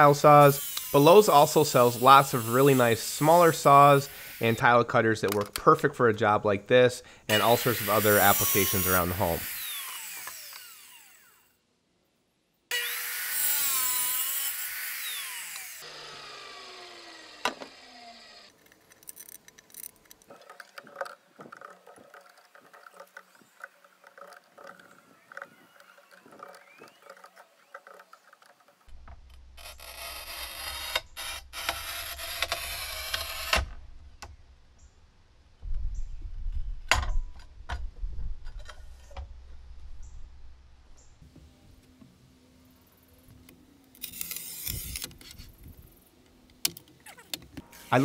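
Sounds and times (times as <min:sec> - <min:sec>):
tile saw cutting tile: 0:00.0 - 0:04.8, 0:07.3 - 0:11.5, 0:12.7 - 0:18.6, 0:22.6 - 0:28.7, 0:29.6 - 0:33.7, 0:44.0 - 0:45.4, 0:47.6 - 0:48.0
tile cutter scraping across tile: 0:29.6 - 0:33.6.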